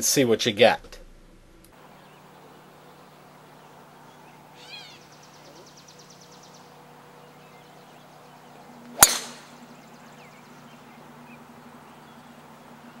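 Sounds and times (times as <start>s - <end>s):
golf club striking ball: 8.9s - 9.7s.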